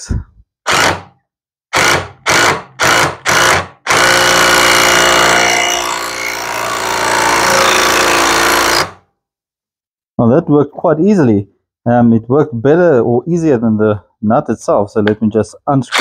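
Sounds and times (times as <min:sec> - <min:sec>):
impact driver turning bolt: 0:00.7 - 0:01.1.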